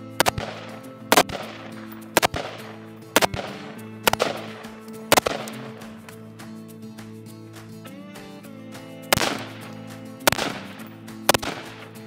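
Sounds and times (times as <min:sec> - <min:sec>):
rifle shots echoing: 0:00.1 - 0:06.0, 0:10.3 - 0:12.0.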